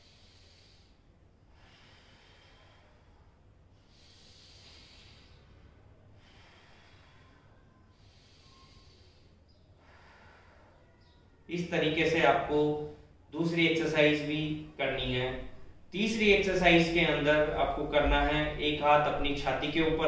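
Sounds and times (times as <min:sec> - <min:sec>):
man breathing deeply: 0:00.0 - 0:11.3.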